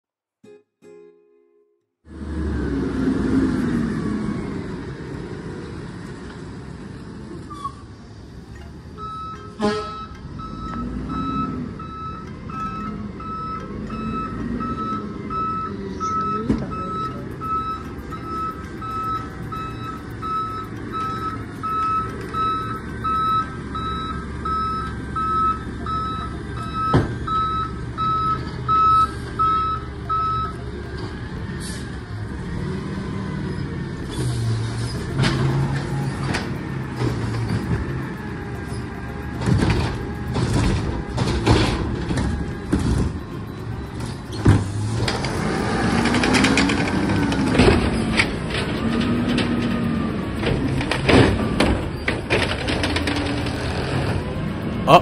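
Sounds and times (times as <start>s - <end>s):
diesel engine: 2.0s - 55.0s
truck backup alarm beeping: 8.9s - 32.8s, 33.5s - 55.0s
hydraulic arm clanking: 34.1s - 55.0s.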